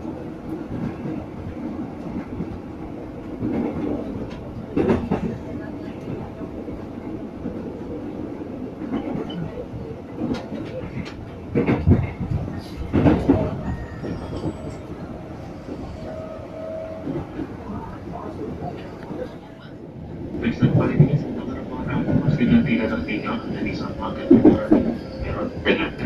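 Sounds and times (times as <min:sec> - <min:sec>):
train running rumble: 0:00.0 - 0:26.0
loud train clunks: 0:03.3 - 0:06.2, 0:10.2 - 0:19.2, 0:20.4 - 0:26.0.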